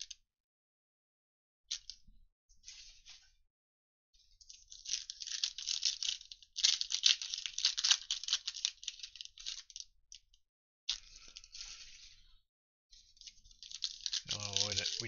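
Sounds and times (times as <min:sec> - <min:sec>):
foil wrapper crackling: 0:04.6 - 0:09.8, 0:13.2 - 0:15.0.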